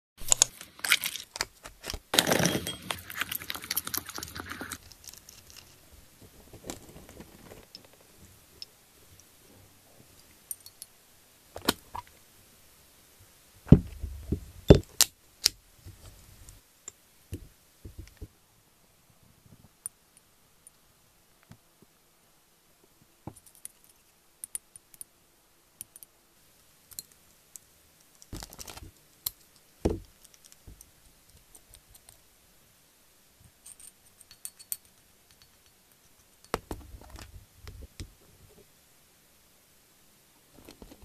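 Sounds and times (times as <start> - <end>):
rustles: 0.2 - 10.3.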